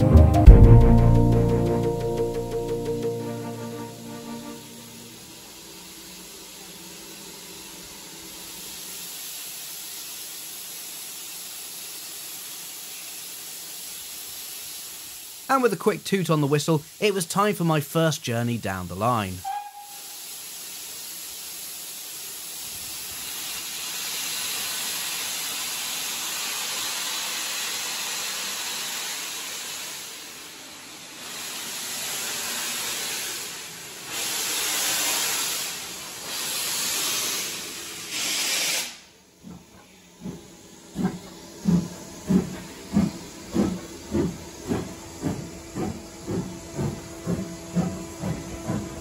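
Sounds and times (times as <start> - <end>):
steam locomotive hissing: 1.9 - 49.0
locomotive exhaust beats: 39.4 - 49.0.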